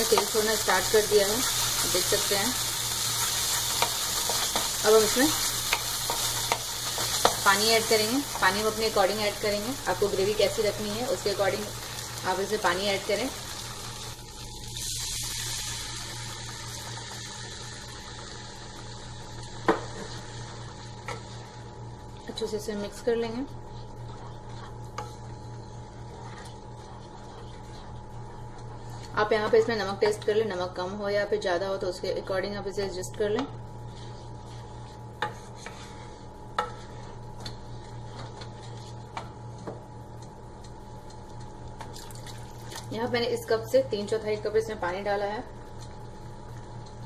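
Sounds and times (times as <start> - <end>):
water hissing in hot oil: 0.0 - 21.7
spatula stirring thick gravy: 23.6 - 29.4, 33.9 - 39.3.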